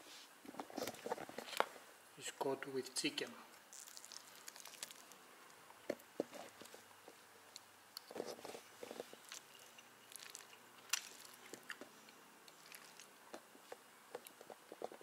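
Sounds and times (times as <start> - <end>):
faint chewing: 3.6 - 15.0.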